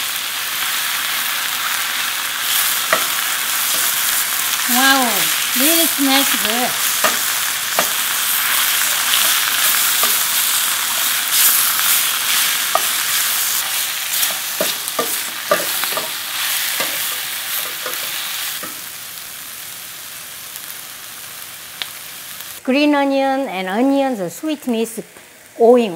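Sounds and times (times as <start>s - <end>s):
food sizzling in hot oil: 0.0s - 22.6s
spoon knocking against pan: 7.0s - 8.0s, 14.2s - 16.2s.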